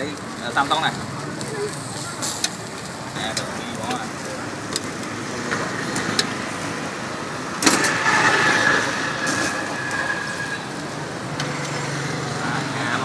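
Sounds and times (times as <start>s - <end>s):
motor traffic noise: 0.0s - 13.0s
steady high-pitched tone: 8.0s - 10.8s.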